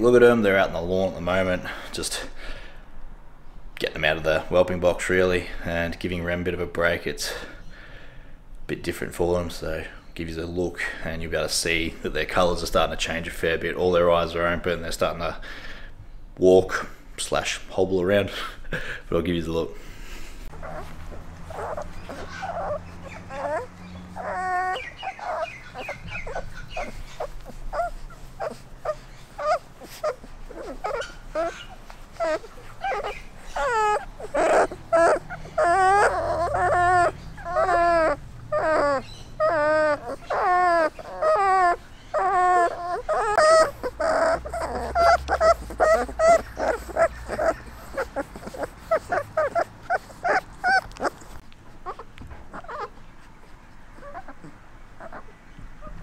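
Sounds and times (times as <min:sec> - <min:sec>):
puppies whimpering and squealing: 0:20.2 - 0:56.0.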